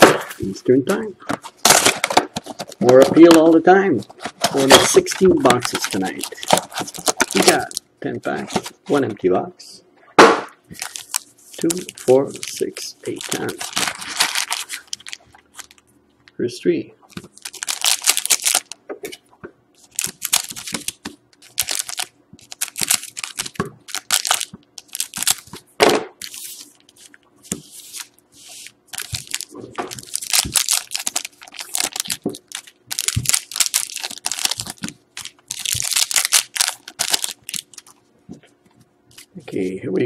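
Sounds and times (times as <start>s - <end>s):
foil wrappers tearing and crinkling: 1.6s - 7.8s, 10.7s - 15.8s, 17.1s - 18.8s, 19.8s - 25.6s, 26.2s - 38.0s.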